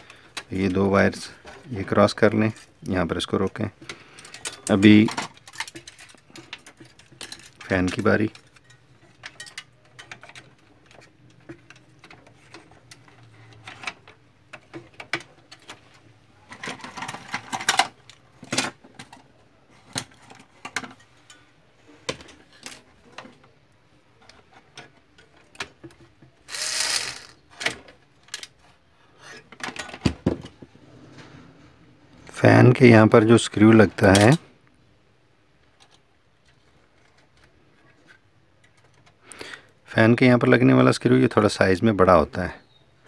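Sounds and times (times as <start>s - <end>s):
plastic and metal parts clicking: 2.4s - 21.0s, 24.2s - 28.7s.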